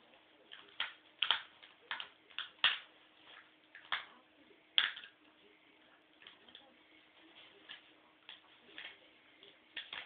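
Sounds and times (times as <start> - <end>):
puppy chewing plastic remote: 0.5 - 2.9.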